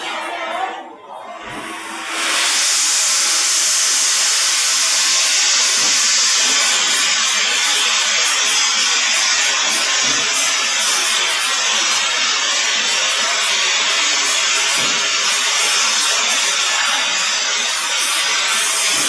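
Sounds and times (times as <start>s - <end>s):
cutting torch hissing: 1.4s - 19.0s.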